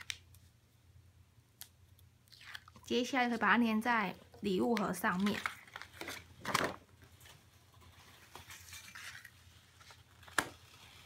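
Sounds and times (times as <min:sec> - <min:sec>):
paper rustling: 0:04.8 - 0:11.0.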